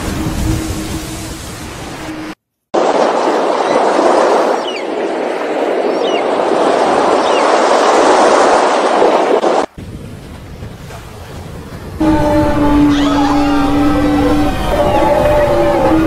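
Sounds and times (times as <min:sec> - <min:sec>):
sea water rushing: 0:00.0 - 0:16.0
wind: 0:00.0 - 0:16.0
high wavering bird calls: 0:12.8 - 0:16.0.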